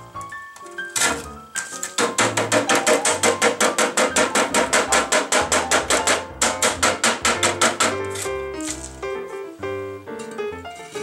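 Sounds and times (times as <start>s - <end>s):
small hammer tapping brick: 1.9s - 8.2s.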